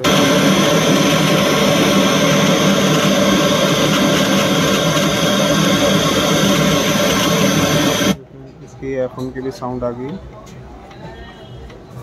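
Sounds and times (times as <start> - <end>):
loud radio static hiss: 0.0 - 8.2.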